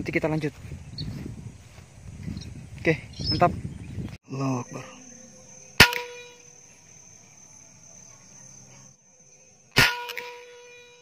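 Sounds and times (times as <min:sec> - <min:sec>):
high insect drone: 0:00.0 - 0:11.0
air rifle shots with metallic ring: 0:09.7 - 0:11.0.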